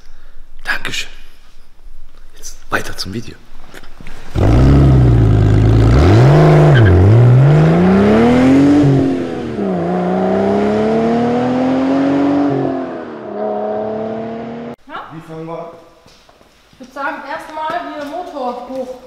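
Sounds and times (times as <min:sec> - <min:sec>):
car engine revving: 0:04.3 - 0:14.8.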